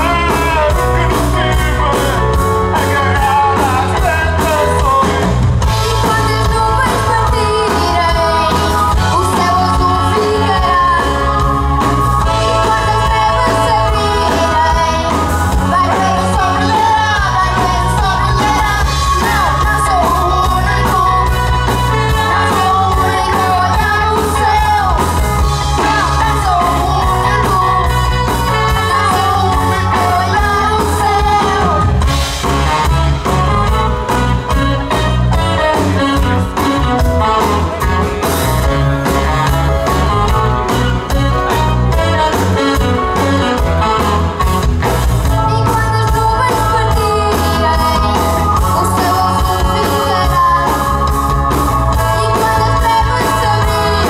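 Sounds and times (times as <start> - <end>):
man singing: 0.0 - 32.0
live pop-rock band playing: 0.0 - 54.0
boy singing: 12.5 - 25.2, 45.4 - 51.1.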